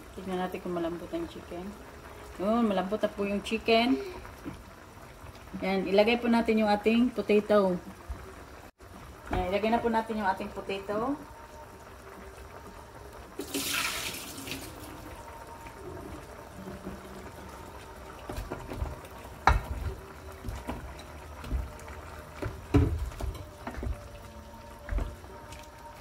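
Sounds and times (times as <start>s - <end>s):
wooden spoon stirring: 16.6s - 26.0s.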